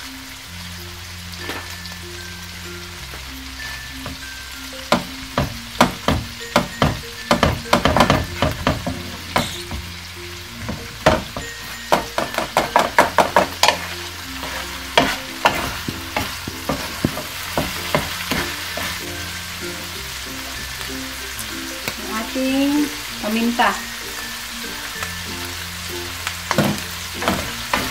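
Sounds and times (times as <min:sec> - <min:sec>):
food sizzling: 0:00.0 - 0:27.9
wooden spatula tapping wok: 0:03.0 - 0:21.1, 0:21.7 - 0:23.6, 0:26.2 - 0:27.9.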